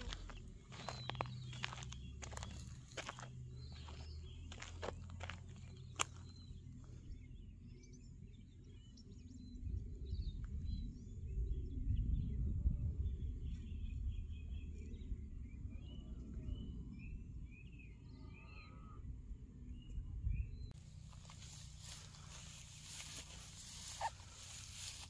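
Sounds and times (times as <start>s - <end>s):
small birds chirping: 0.0s - 19.0s, 19.6s - 25.0s
wind rumble on microphone: 9.0s - 21.4s.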